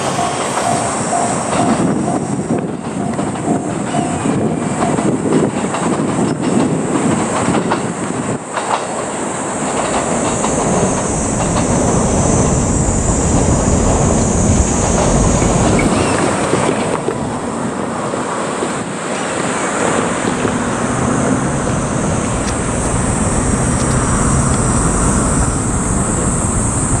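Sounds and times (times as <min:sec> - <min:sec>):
faint high wheel squeal: 0:00.0 - 0:05.2, 0:10.0 - 0:16.5
train wheels clattering: 0:00.0 - 0:17.4.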